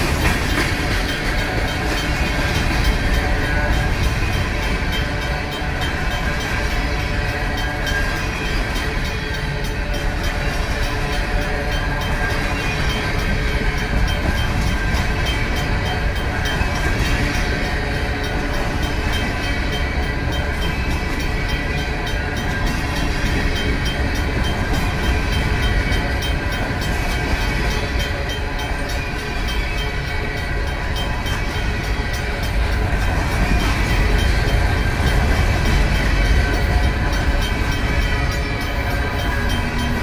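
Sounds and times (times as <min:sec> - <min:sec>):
crossing bell ringing: 0:00.0 - 0:40.0
freight train wheels rumbling: 0:00.0 - 0:40.0.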